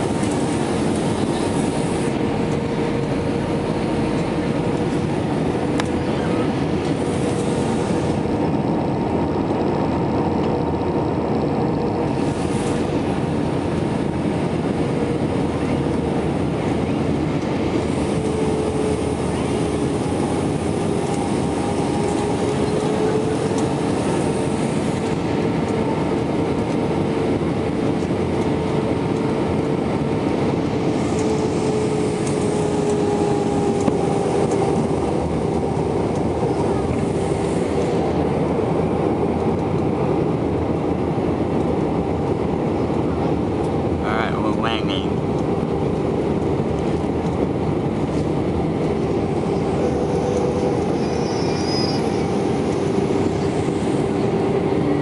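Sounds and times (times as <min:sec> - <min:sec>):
airliner cabin roar: 0:00.0 - 0:55.0
faint jet engine whine: 0:00.0 - 0:55.0.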